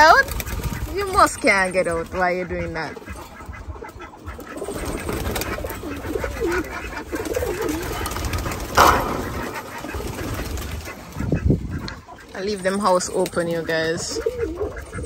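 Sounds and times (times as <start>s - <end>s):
doves cooing: 0.0s - 15.0s
sharp rustling burst: 7.2s - 11.5s.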